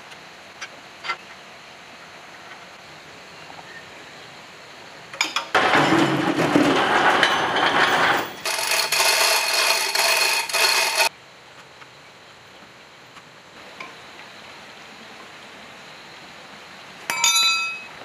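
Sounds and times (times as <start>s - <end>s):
steady ringing tones: 5.2s - 11.1s, 17.1s - 18.0s
chain hoist rattling and scraping: 5.6s - 11.1s.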